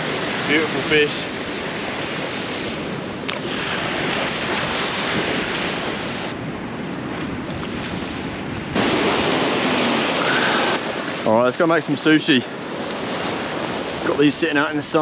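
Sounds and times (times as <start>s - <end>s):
wind on the microphone: 0.0s - 11.3s
surf breaking: 0.0s - 15.0s.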